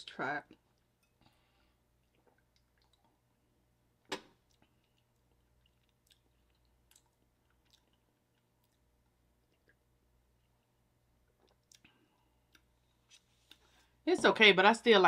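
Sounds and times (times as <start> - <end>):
mouth clicks and lip smacks: 2.0 - 3.2.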